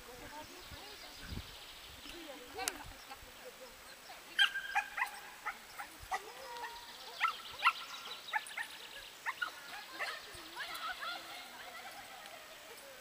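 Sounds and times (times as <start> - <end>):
dog yipping and barking: 4.4 - 6.2.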